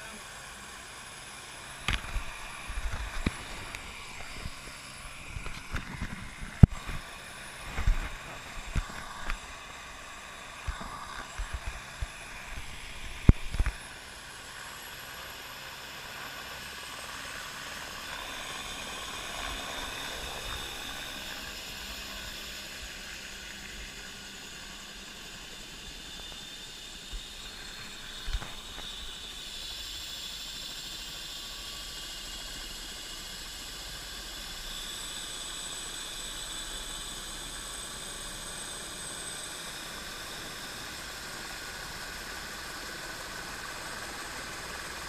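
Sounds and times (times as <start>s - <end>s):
steady hiss: 0.0s - 45.0s
camera handling bumps and rubbing: 5.3s - 7.1s.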